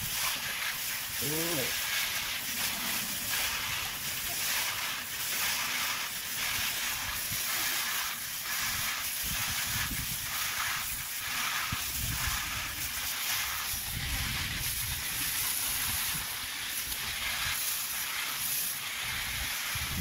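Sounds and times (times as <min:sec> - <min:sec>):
hose nozzle spraying water: 0:00.0 - 0:20.0
water splashing in a bowl: 0:00.0 - 0:20.0.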